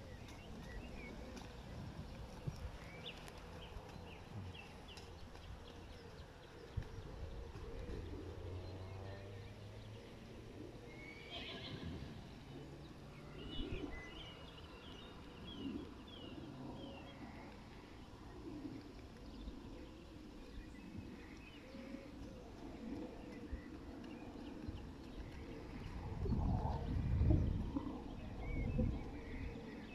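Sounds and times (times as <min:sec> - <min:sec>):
horse whinnying: 0:11.2 - 0:12.0.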